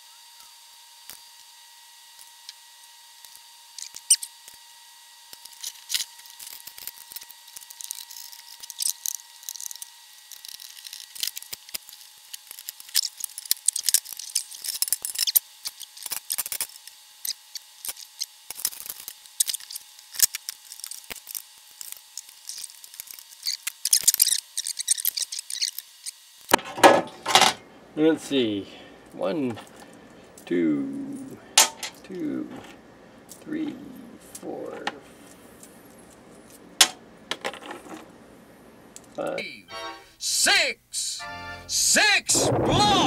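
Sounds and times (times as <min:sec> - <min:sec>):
metal parts clicking and rattling: 0:05.5 - 0:27.6.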